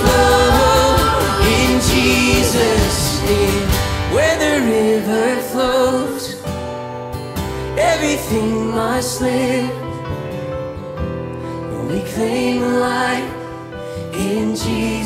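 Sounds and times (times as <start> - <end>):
woman singing: 0.0 - 3.7
band accompaniment: 0.0 - 5.3
acoustic guitar: 0.0 - 15.0.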